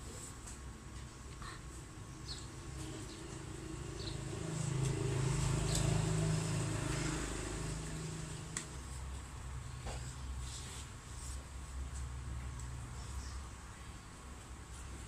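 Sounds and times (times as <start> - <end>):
vehicle engine passing: 2.6 - 9.0.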